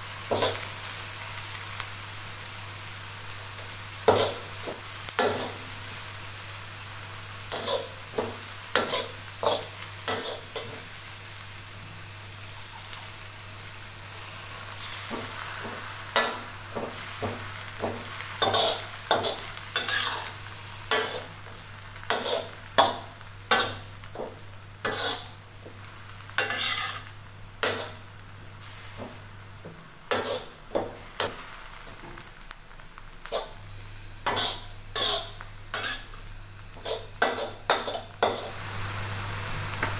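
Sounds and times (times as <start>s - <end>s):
frying sizzle: 0.0s - 39.9s
metal spatula scraping wok: 7.5s - 8.0s, 8.7s - 10.8s, 18.4s - 21.3s, 22.1s - 23.9s, 24.8s - 25.4s, 26.4s - 28.0s, 30.1s - 30.6s, 34.2s - 36.2s, 36.8s - 38.6s.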